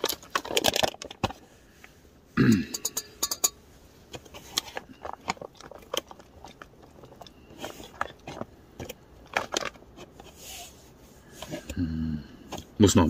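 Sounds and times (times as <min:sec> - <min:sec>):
foil pouch crinkling: 0:00.0 - 0:01.5.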